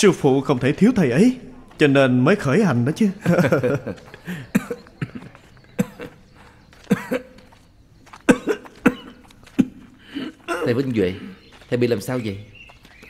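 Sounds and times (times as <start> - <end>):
man coughing: 4.2 - 6.2, 6.8 - 7.4, 8.2 - 11.4.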